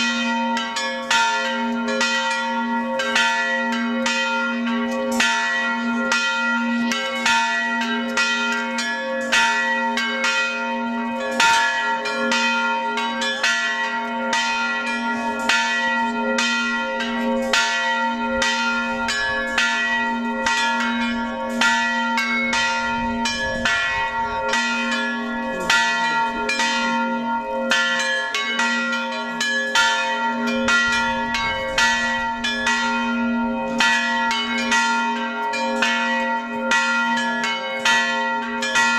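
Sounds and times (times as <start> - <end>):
church bells ringing: 0.0 - 38.9
deep bell humming: 13.4 - 35.1.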